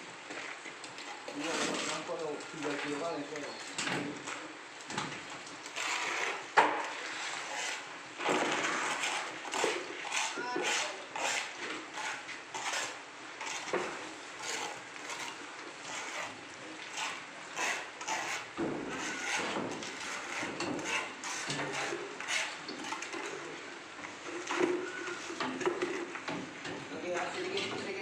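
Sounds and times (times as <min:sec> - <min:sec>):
sand scraping on concrete floor: 0:01.3 - 0:03.6, 0:05.6 - 0:23.5.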